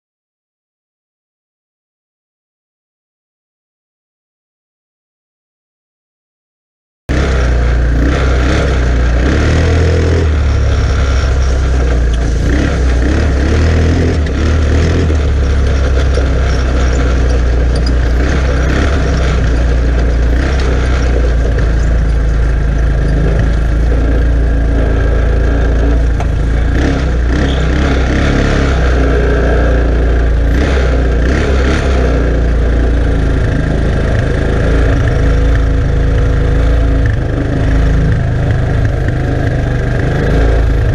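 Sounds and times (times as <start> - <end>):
quad bike engine running: 7.1 - 40.9
trailer knocking and rattling: 8.5 - 28.7.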